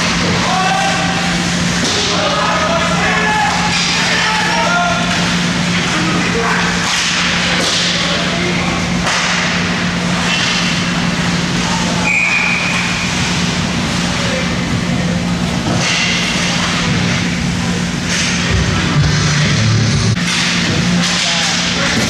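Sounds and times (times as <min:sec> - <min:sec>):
low hum: 0:04.9 - 0:21.1.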